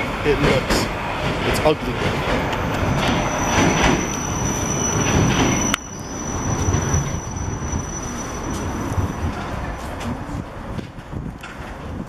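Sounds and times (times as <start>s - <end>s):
train rumble on rails: 0.0s - 12.0s
high-pitched whine: 2.5s - 10.3s.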